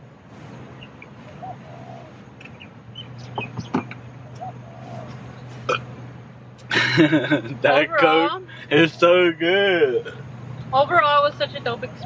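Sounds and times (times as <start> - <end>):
steady low hum: 0.0 - 12.0
sharp clicks and knocks: 3.2 - 4.5.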